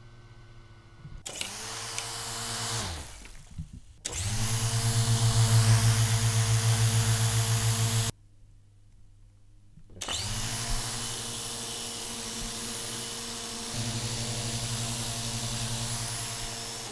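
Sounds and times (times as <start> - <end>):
toy helicopter motors whirring: 1.2 - 3.3.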